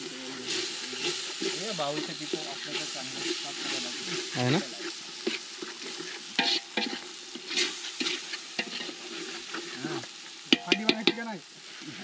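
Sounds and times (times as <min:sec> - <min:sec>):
masala sizzling in pot: 0:00.0 - 0:12.0
metal spoon scraping pot: 0:00.4 - 0:09.9.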